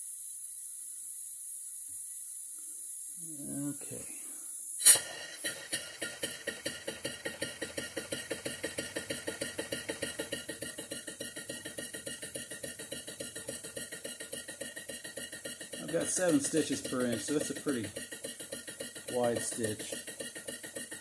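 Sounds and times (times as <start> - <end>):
sewing machine rhythmic clatter: 5.2 - 21.0.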